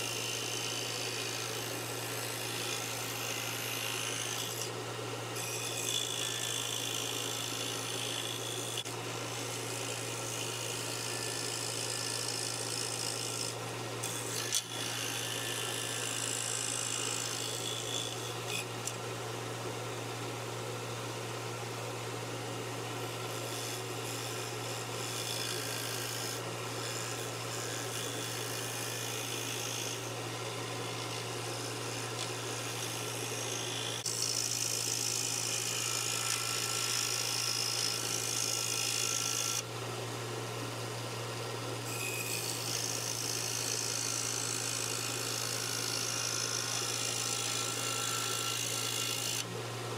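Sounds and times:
saw blade rasping wood: 0.0 - 19.0, 22.6 - 39.7, 41.8 - 49.5
scroll saw humming: 0.0 - 49.9.

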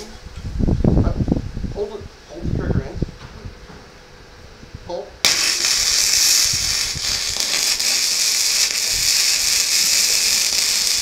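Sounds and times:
welding arc crackling: 5.2 - 11.0.

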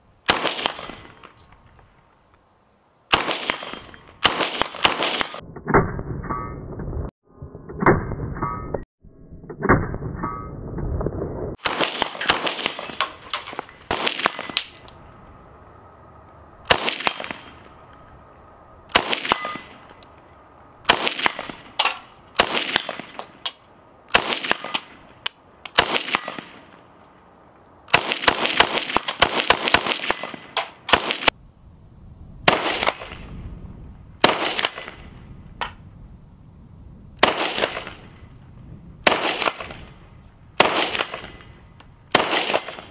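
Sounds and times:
rifle shots: 0.3 - 1.3, 3.1 - 5.4, 11.6 - 14.8, 16.6 - 17.8, 18.9 - 20.0, 20.8 - 23.5, 24.1 - 26.7, 27.9 - 31.3, 32.5 - 33.2, 34.2 - 35.1, 37.2 - 38.2, 39.0 - 40.0, 40.6 - 42.9
steel target clanging: 11.8 - 14.8, 19.0 - 20.0.

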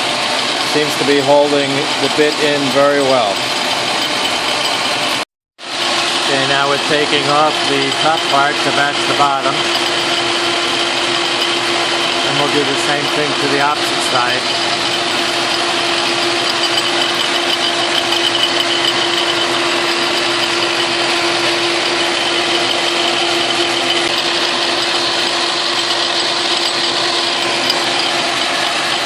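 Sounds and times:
lathe milling drone: 0.0 - 29.0.

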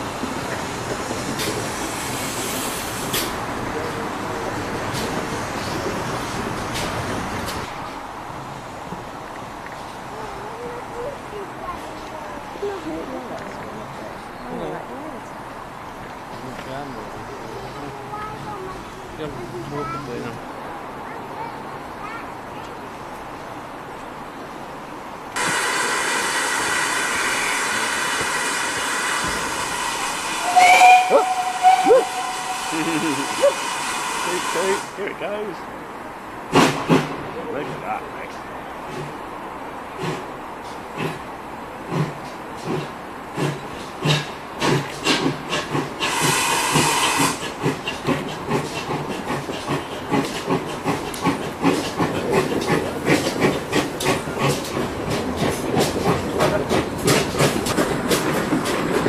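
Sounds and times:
steam locomotive hissing: 0.0 - 7.9, 25.4 - 35.2, 40.0 - 59.0.

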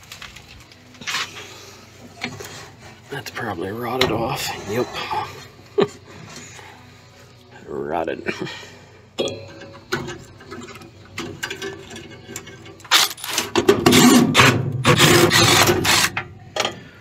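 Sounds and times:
metal scraping and rapid clicking: 10.1 - 16.3.

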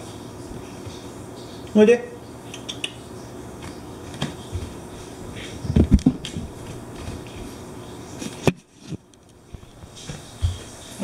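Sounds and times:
dull thumps and light knocks: 5.6 - 7.6, 8.5 - 10.7.

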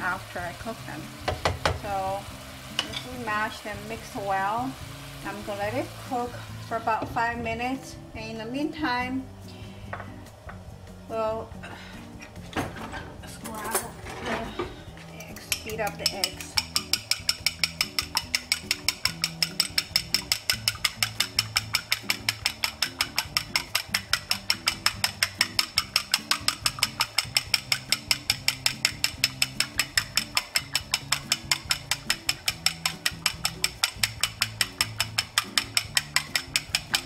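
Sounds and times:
fork beating eggs in bowl: 15.2 - 37.0.

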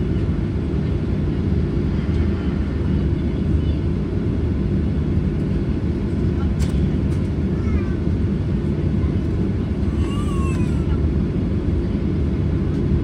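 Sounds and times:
airplane cabin rumble: 0.0 - 13.0.

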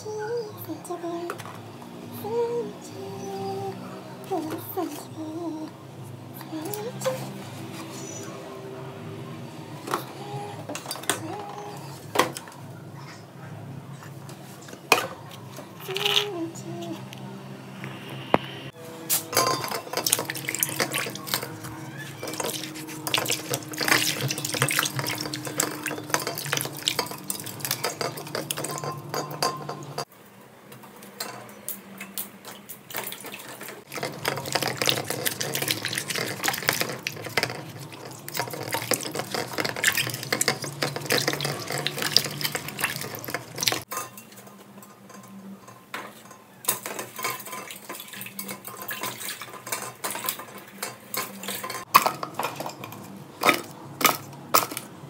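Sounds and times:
water sloshing and splashing: 19.3 - 30.1, 32.0 - 44.2, 46.1 - 54.8
produce knocking against metal pot: 22.2 - 30.1.

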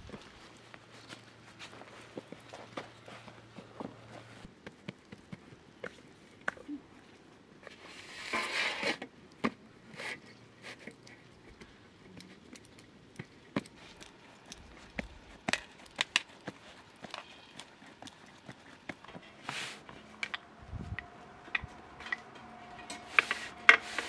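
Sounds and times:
rustling scrape: 7.7 - 9.0, 16.2 - 24.0.

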